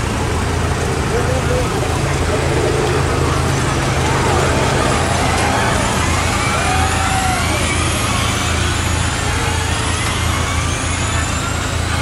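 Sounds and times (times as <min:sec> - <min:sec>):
low rumble: 0:00.0 - 0:09.4
electric race cars whining: 0:00.0 - 0:12.0.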